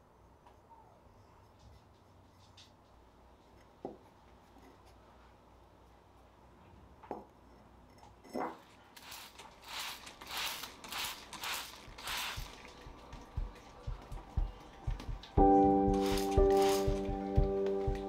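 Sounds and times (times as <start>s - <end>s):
paintbrush strokes on ceramic: 3.3s - 6.2s, 9.0s - 13.5s.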